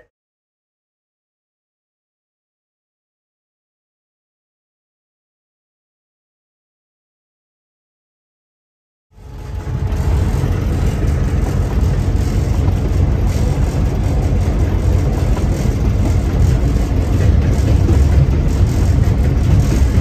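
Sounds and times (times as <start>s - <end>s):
locomotive engine droning: 9.1s - 20.0s.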